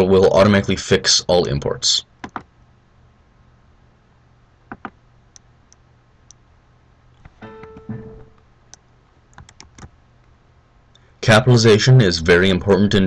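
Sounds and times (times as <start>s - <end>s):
keyboard keys clicking: 8.7s - 9.9s.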